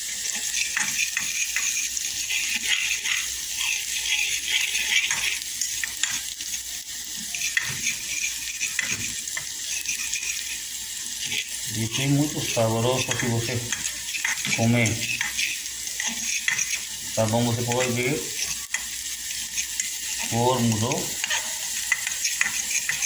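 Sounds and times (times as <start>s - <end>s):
onions sizzling in a pan: 0.0s - 23.0s
utensil scraping and tapping pan: 0.2s - 6.2s, 7.4s - 10.6s, 12.9s - 16.9s, 21.2s - 23.0s.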